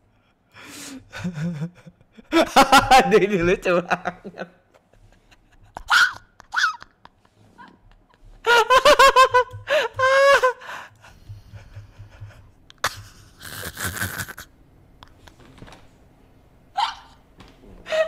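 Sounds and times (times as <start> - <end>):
man laughing hard: 1.1 - 14.5.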